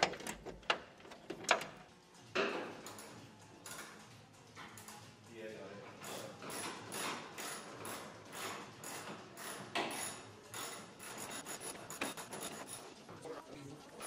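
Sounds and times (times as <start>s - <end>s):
ratchet wrench rasping: 6.0s - 12.9s.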